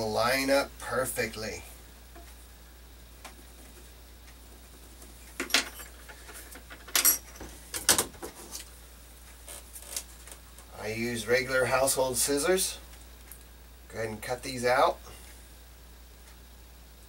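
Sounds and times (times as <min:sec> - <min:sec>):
low room hum: 0:00.0 - 0:17.0
small tools clattering on desk: 0:05.4 - 0:08.7.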